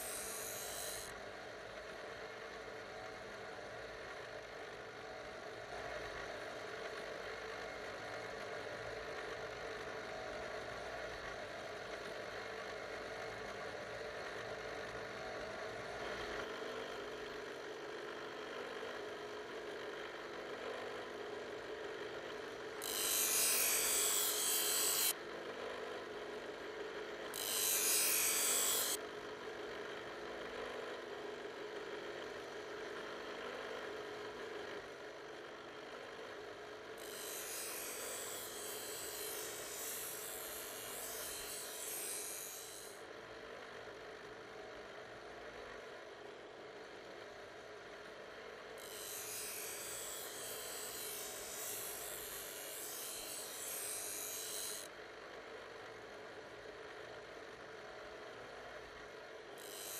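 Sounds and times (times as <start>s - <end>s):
grinding hiss: 0.0s - 1.1s, 22.4s - 25.1s, 27.3s - 29.0s, 37.0s - 43.0s, 48.8s - 54.9s, 59.6s - 59.9s
knife blade grinding: 0.0s - 1.1s, 22.8s - 25.1s, 27.3s - 29.0s, 37.0s - 43.0s, 48.8s - 54.9s, 59.6s - 59.9s
bench grinder humming: 0.0s - 4.6s, 5.4s - 59.9s.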